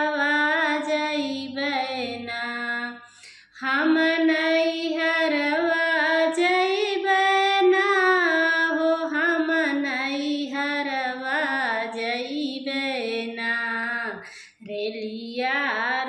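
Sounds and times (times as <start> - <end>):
woman singing unaccompanied: 0.0 - 16.0.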